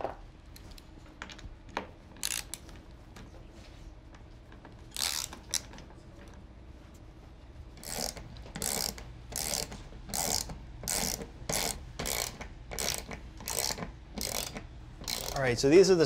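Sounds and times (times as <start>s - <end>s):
socket wrench ratchet clicking: 2.2s - 2.6s, 4.9s - 5.7s, 7.8s - 15.4s.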